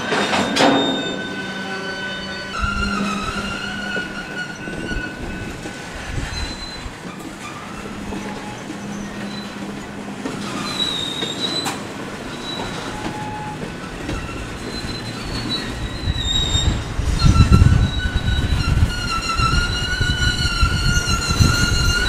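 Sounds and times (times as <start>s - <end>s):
steel train wheels squealing: 0.0s - 22.0s.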